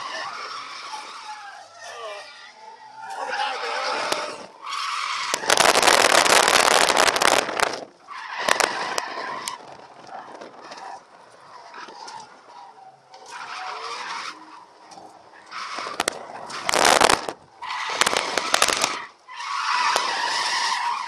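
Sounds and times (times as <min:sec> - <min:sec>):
car engine: 0:00.0 - 0:21.0
tyres skidding: 0:00.0 - 0:21.0
sharp crackles: 0:04.0 - 0:11.1, 0:15.6 - 0:20.6.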